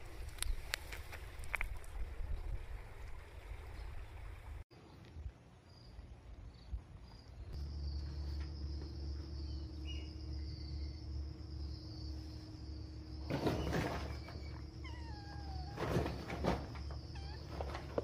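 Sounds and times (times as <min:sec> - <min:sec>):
low hum: 0:04.8 - 0:15.6
high insect trill: 0:05.7 - 0:18.0.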